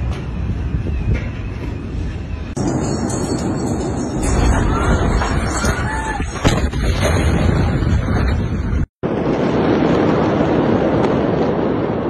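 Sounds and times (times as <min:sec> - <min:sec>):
explosion rumbling roar: 0:04.2 - 0:12.0.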